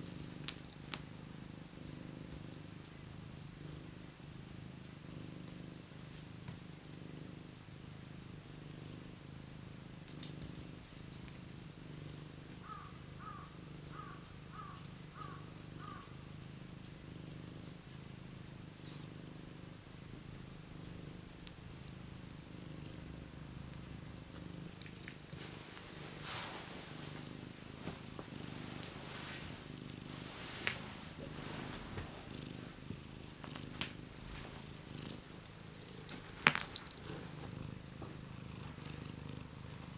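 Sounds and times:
cat purring: 0:00.0 - 0:39.9
small clicks and jingles: 0:35.2 - 0:38.4.

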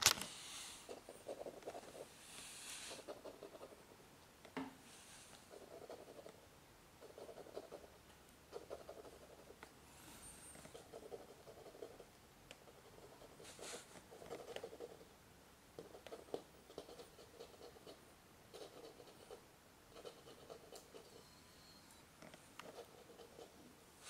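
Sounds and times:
soft scratches: 0:12.6 - 0:14.9.

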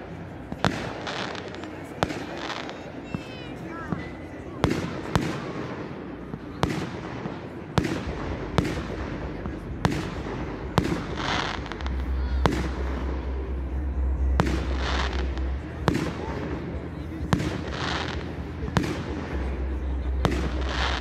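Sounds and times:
fireworks bangs: 0:00.0 - 0:21.0.

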